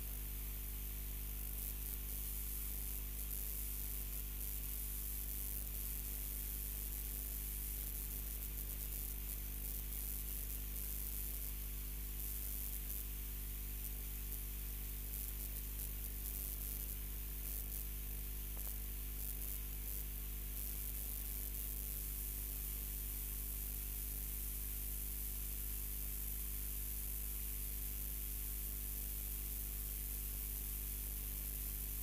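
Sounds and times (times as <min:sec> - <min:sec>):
static hiss: 0:08.5 - 0:24.6.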